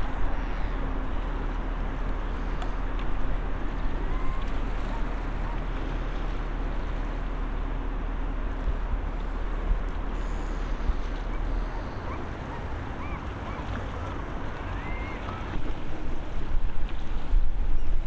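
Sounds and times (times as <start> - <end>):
steady low rumble: 0.0 - 18.0
wind buffeting microphone: 10.7 - 18.0.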